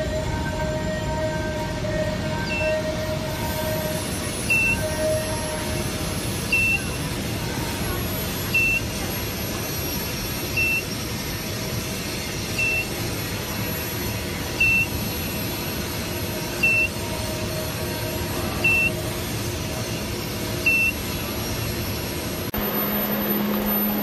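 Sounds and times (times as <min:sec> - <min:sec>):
steady machine hum: 0:00.0 - 0:24.0
high electronic beeps: 0:02.4 - 0:03.3, 0:04.3 - 0:05.5, 0:06.4 - 0:07.1, 0:08.5 - 0:09.0, 0:10.5 - 0:10.9, 0:12.6 - 0:13.0, 0:14.6 - 0:15.1, 0:16.6 - 0:17.5, 0:18.6 - 0:19.1, 0:20.6 - 0:21.1, 0:22.6 - 0:24.0.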